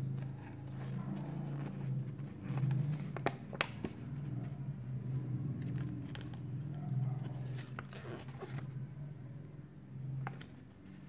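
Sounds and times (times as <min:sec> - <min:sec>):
paper crinkling and rustling: 0:05.5 - 0:08.8.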